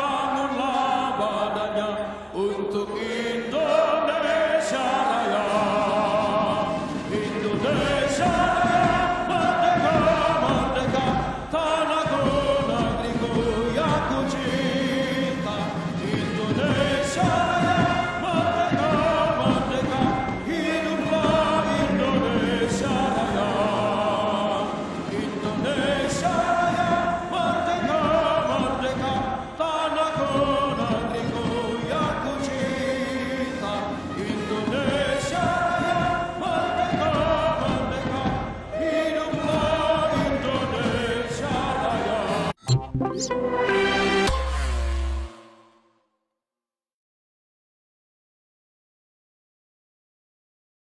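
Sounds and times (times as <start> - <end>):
choir singing held notes: 0.0 - 45.9
military marching band: 4.9 - 45.4
drums beating steadily: 5.5 - 23.7.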